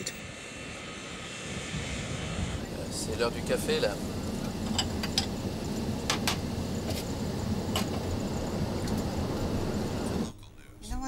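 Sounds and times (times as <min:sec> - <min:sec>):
aircraft cabin rumble: 0:00.0 - 0:10.7.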